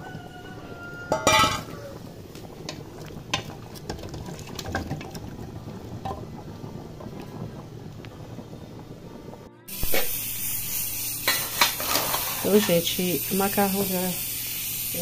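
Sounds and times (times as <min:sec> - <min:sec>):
metal clanks against pot: 0:01.1 - 0:01.8, 0:02.7 - 0:05.3.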